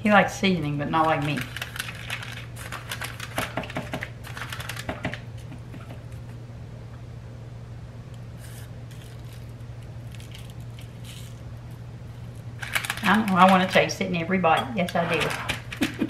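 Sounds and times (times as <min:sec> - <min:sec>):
steady low hum: 0:00.0 - 0:16.0
parchment paper crinkling: 0:00.7 - 0:06.2, 0:08.4 - 0:14.0.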